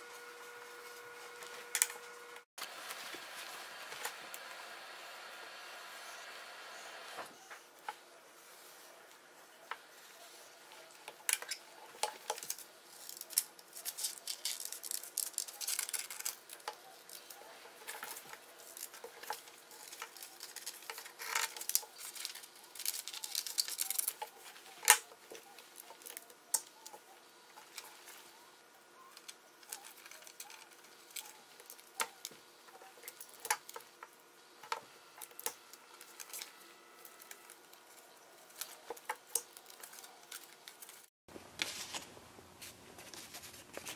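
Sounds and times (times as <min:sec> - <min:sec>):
scissors snipping paper: 0:12.2 - 0:27.0
paper rustling on wooden desk: 0:38.5 - 0:43.9.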